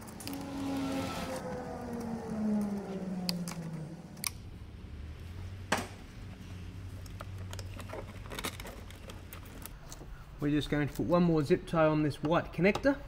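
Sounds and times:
falling buzzy tone: 0.0 - 4.2.

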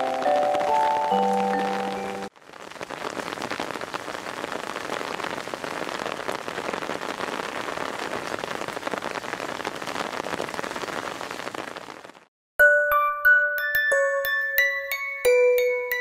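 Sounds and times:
heavy rain: 0.0 - 12.3.

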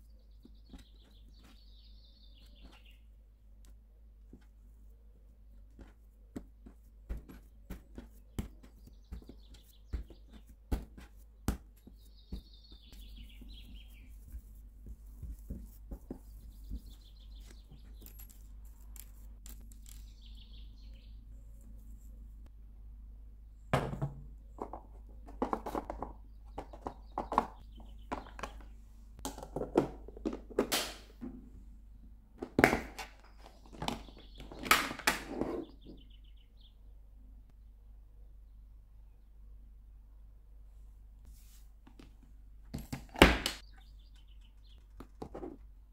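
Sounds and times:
birds chirping: 0.0 - 3.1, 7.7 - 10.6, 11.7 - 14.6, 15.2 - 18.5, 19.7 - 21.6, 24.6 - 28.9, 33.1 - 37.0, 43.6 - 45.0
hands shaping dough: 0.0 - 22.5.

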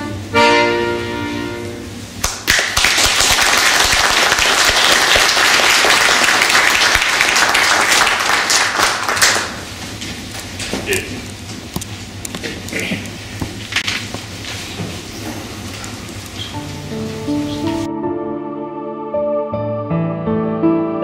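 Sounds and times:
accordion chord: 0.0 - 2.0, 16.5 - 21.0
audience applause: 2.2 - 9.7.

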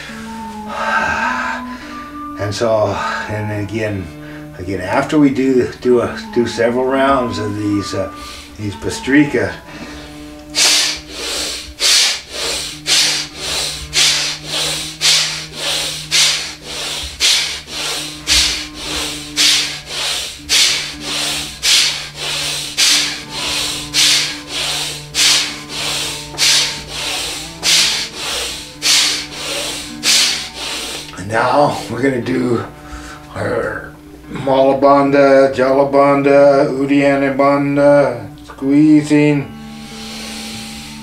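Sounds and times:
man forceful nasal breathing: 8.1 - 8.6, 9.6 - 32.0, 32.7 - 33.3, 39.5 - 41.0.

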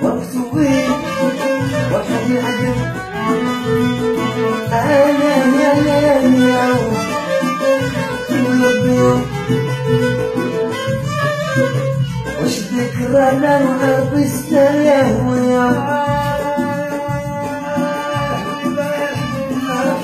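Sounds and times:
keyboard accompaniment: 0.0 - 20.0
steady bass line: 0.0 - 20.0
violins playing wavering melody: 0.6 - 13.7.

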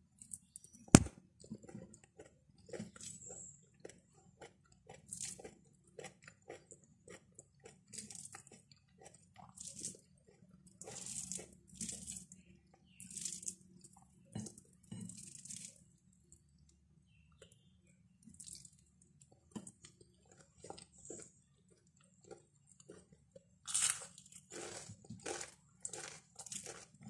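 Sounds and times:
person chewing: 1.0 - 11.9, 18.4 - 27.0.

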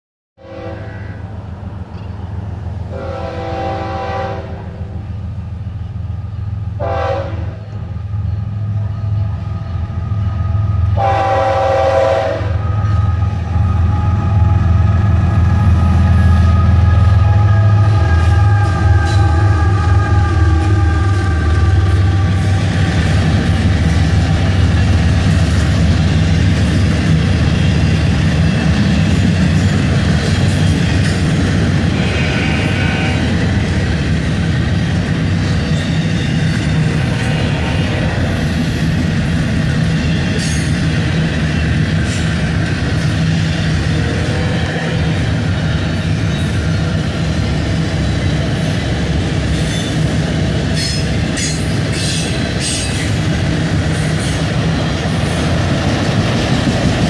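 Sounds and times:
locomotive air horn blasts: 0.4 - 1.2, 2.9 - 5.0, 6.8 - 7.8, 10.9 - 23.4, 31.9 - 33.4, 43.9 - 45.4
diesel locomotive engines droning: 0.4 - 57.0
freight cars rumbling past: 12.4 - 57.0.

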